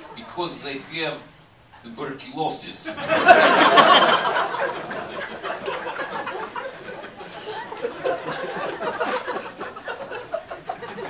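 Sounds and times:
audience laughing: 2.9 - 11.0.

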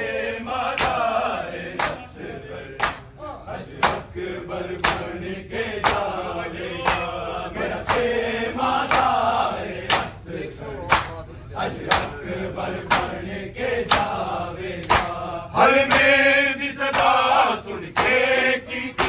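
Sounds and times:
men chanting together: 0.0 - 19.0
chest slaps in unison: 0.8 - 1.0, 1.8 - 2.0, 2.8 - 3.2, 12.9 - 13.2, 13.9 - 14.2, 14.8 - 15.2, 15.9 - 16.2.

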